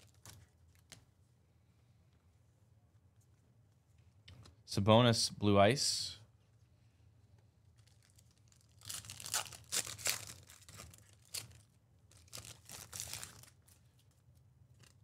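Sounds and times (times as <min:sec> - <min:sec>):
card pack wrapper tearing: 0:07.8 - 0:13.8.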